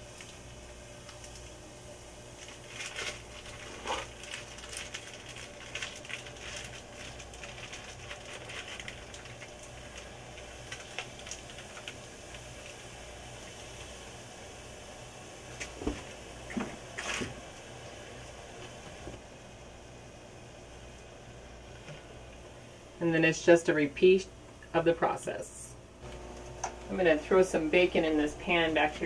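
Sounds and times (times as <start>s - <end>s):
batter sizzling in hot oil: 0.0s - 18.8s.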